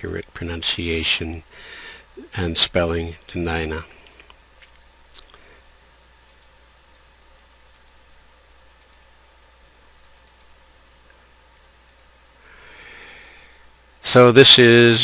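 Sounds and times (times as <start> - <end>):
low steady hiss and hum: 0.0 - 15.0
computer mouse clicks: 6.2 - 9.1, 10.0 - 10.6, 11.6 - 12.1.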